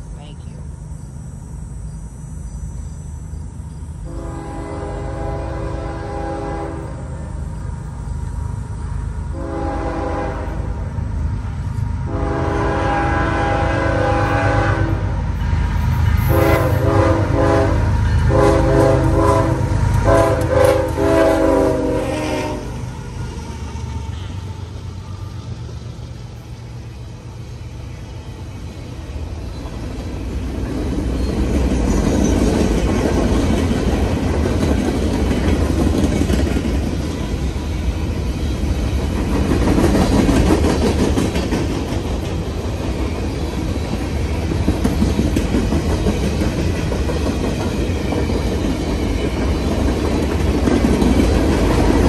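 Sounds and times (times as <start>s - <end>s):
locomotive engines rumbling: 0.0s - 52.0s
train air horn blasts: 4.0s - 7.1s, 9.3s - 10.8s, 12.1s - 15.1s, 16.2s - 22.8s
steel wheels clattering on rails: 29.5s - 52.0s.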